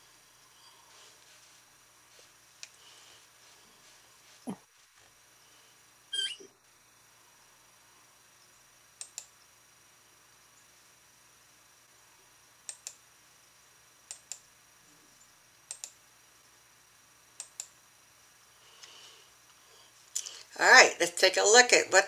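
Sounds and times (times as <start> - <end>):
faint room hiss: 0.0 - 22.0
computer mouse clicking: 9.0 - 9.3, 12.6 - 13.0, 14.1 - 14.5, 15.7 - 16.0, 17.4 - 17.8.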